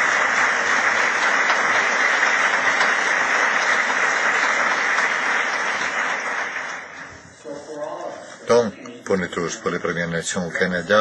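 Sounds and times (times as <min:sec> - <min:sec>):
audience applauding: 0:00.0 - 0:07.4.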